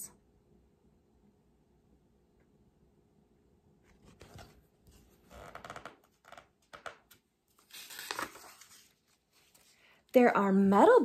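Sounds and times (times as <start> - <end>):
paper pages rustling: 3.9 - 10.0.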